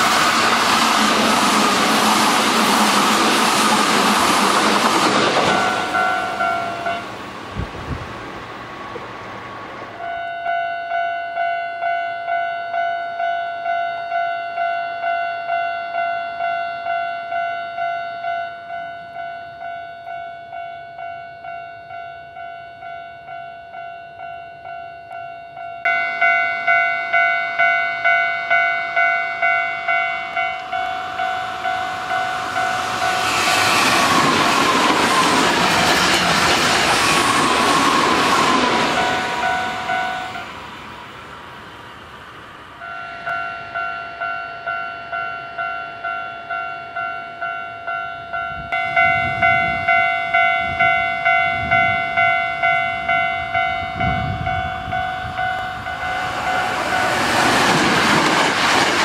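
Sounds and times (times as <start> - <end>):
electric train passing: 0.0 - 59.0
level crossing bell ringing: 5.4 - 7.1, 10.0 - 33.6, 37.9 - 40.5, 42.8 - 57.4.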